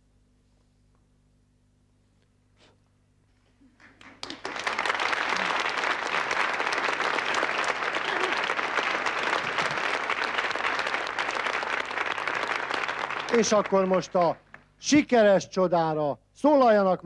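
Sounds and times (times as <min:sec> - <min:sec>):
audience applause: 0:03.8 - 0:14.6.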